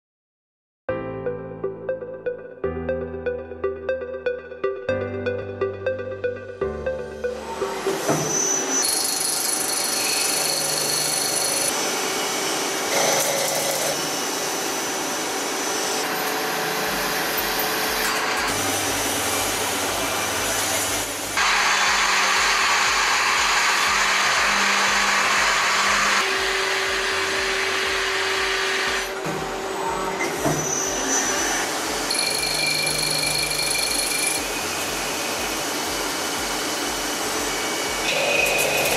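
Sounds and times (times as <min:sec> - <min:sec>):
lathe cutting steel: 0:07.4 - 0:38.9.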